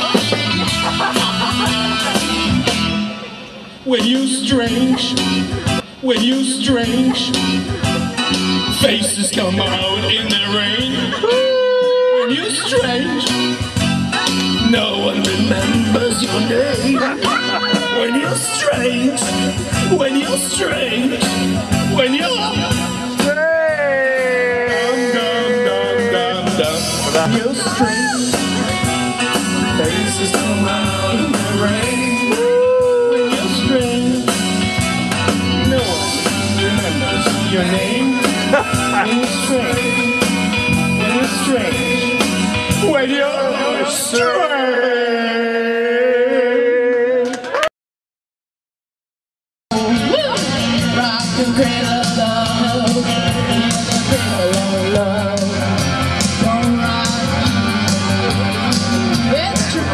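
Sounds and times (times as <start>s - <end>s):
drum and cymbal hits: 0.0s - 11.1s, 12.6s - 43.0s
rock band playing: 0.0s - 44.3s, 49.7s - 59.9s
man singing into a microphone: 3.8s - 13.4s, 14.2s - 34.9s, 35.5s - 47.5s, 49.7s - 59.9s.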